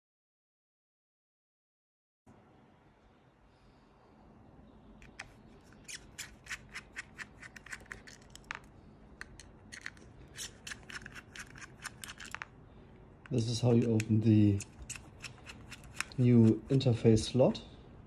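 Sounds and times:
screwdriver clicking in screw heads: 5.0s - 8.6s, 9.2s - 12.5s, 13.7s - 16.8s.

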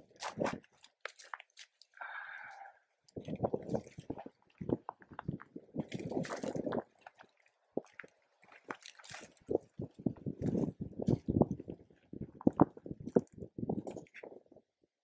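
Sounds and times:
footsteps on stony soil and leaves: 0.0s - 2.0s.

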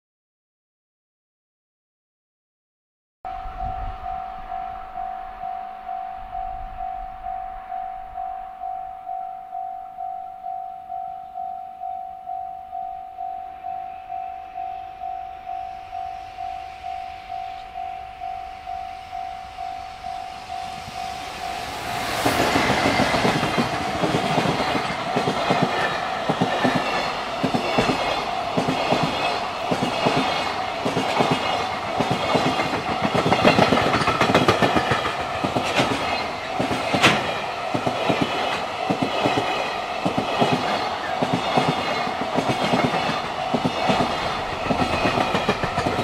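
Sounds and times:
level-crossing alarm dinging: 3.3s - 46.0s
train wheels clattering over rails: 20.8s - 46.0s.

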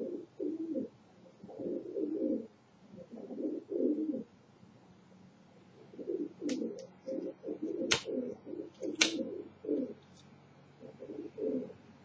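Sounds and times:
pigeon cooing: 0.0s - 4.3s, 5.8s - 10.0s, 10.8s - 11.8s
sharp clicks: 7.9s - 8.1s, 8.9s - 9.2s.

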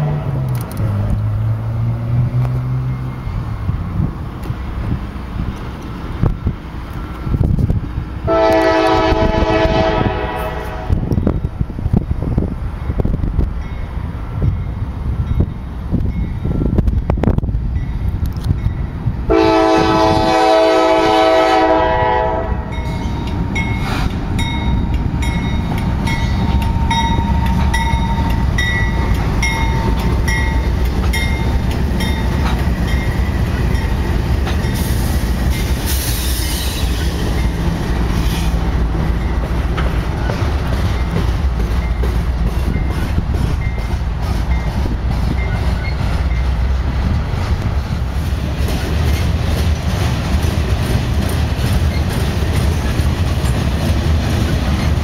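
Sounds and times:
freight train rumbling past: 0.0s - 55.0s
locomotive air horn chord: 8.3s - 11.1s, 19.3s - 22.8s
wheels clicking over rail joints: 22.8s - 46.6s, 47.4s - 55.0s.

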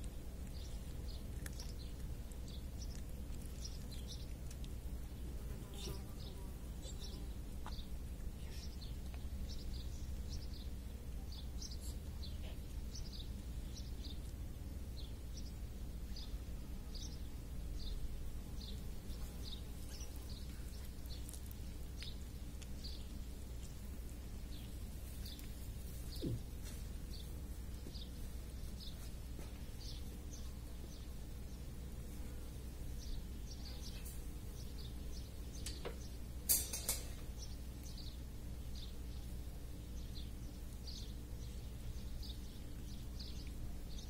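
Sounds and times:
small birds chirping: 0.0s - 44.0s.

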